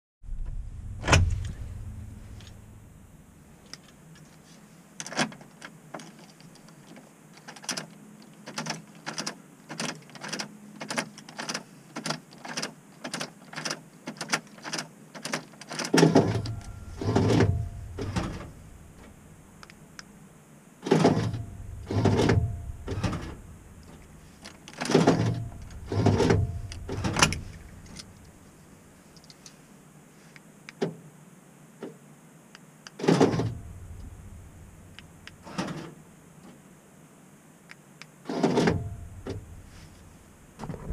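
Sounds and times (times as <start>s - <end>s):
door lock actuators clunking: 8.5s - 19.2s, 20.9s - 28.3s, 33.0s - 34.6s
ignition key clicking: 21.1s - 28.3s.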